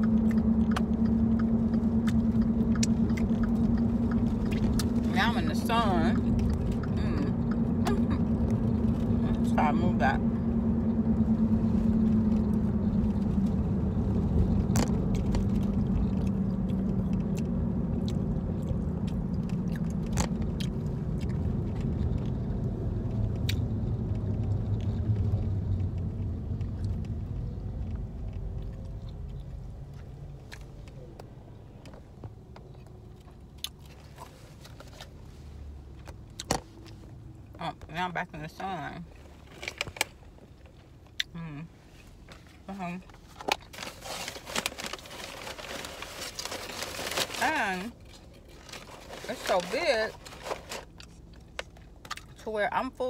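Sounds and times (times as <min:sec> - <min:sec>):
person chewing food: 0:00.0 - 0:05.1, 0:06.3 - 0:09.1, 0:14.3 - 0:23.8, 0:50.8 - 0:52.4
car interior rumble: 0:00.0 - 0:53.0.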